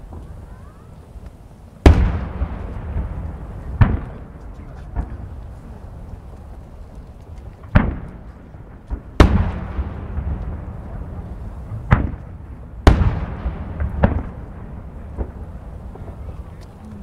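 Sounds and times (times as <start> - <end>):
low rolling rumble: 0.0 - 17.0
firework shells booming: 1.8 - 6.6, 7.2 - 17.0.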